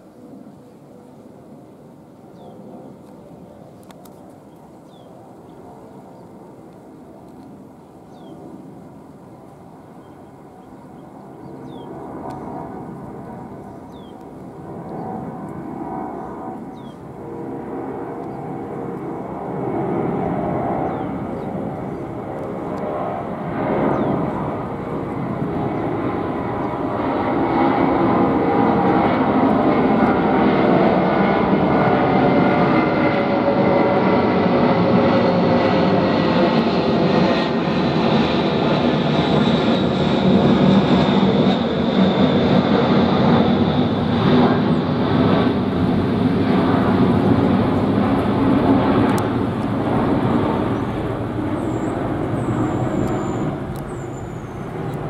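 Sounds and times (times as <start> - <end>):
jet aircraft flyby: 0.0 - 55.0.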